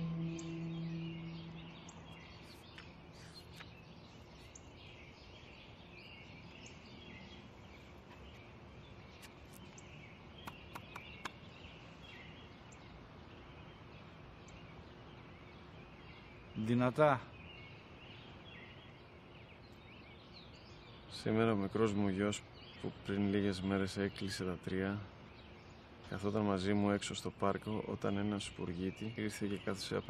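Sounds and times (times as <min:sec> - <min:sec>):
held low musical tone: 0:00.0 - 0:02.7
birds chirping: 0:00.0 - 0:30.0
sharp clicks: 0:10.5 - 0:11.4.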